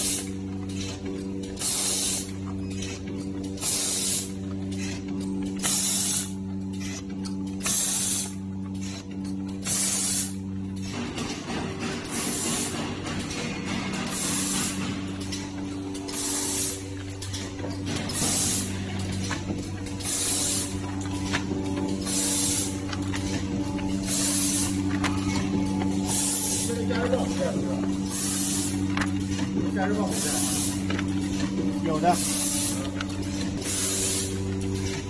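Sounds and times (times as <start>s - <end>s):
steady machine hum: 0.0s - 35.0s
air hiss bursts: 1.6s - 2.3s, 5.6s - 6.3s, 9.7s - 10.3s, 24.1s - 24.7s, 28.1s - 28.7s, 33.6s - 34.3s.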